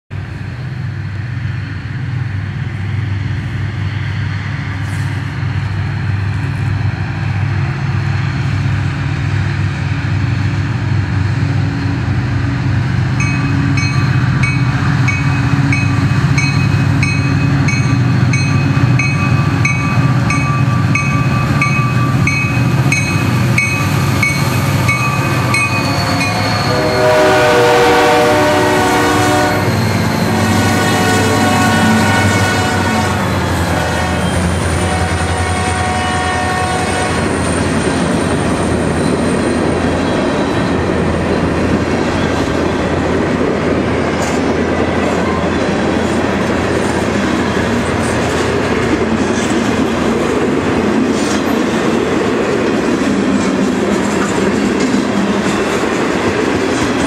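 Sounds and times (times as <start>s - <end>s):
diesel locomotive engines rumbling: 0.1s - 57.0s
crossing bell ringing: 13.2s - 28.2s
locomotive horn: 24.8s - 37.4s.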